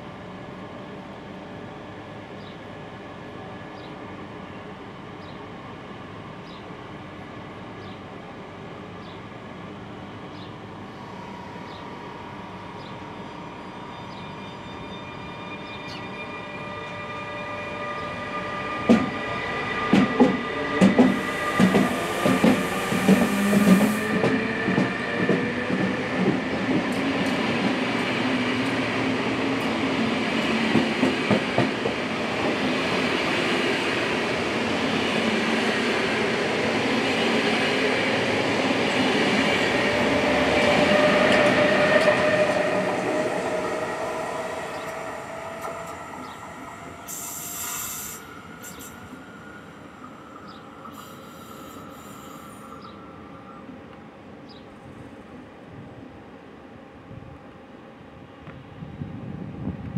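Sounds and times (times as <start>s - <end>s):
electric locomotive whining: 8.8s - 59.9s
brief high hiss: 47.1s - 49.0s.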